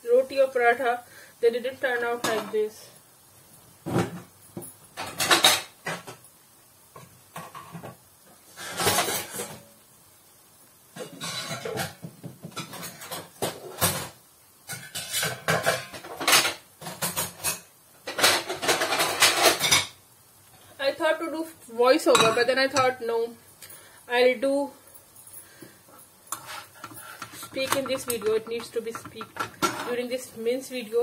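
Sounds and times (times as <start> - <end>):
utensils and cookware clattering: 3.9 - 6.2, 7.0 - 9.7, 11.0 - 20.0, 22.0 - 23.0, 25.0 - 30.4.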